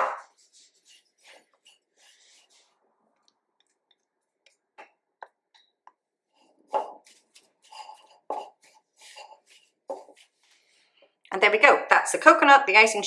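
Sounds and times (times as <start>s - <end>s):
spatula scraping a bowl: 0.2s - 2.8s, 6.4s - 10.9s
stirring stiff mixture in bowl: 0.2s - 2.8s, 3.6s - 11.2s
spatula tapping: 6.7s - 10.6s.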